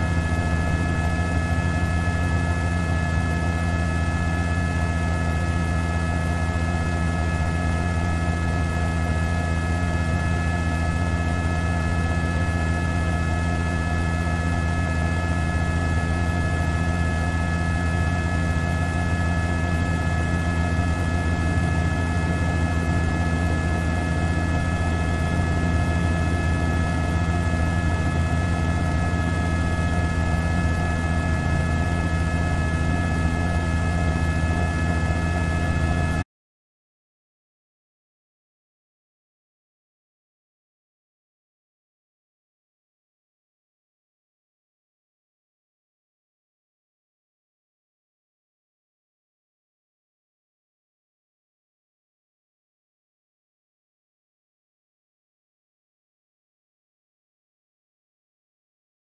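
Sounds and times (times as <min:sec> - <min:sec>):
helicopter drone overhead: 0:00.0 - 0:36.2.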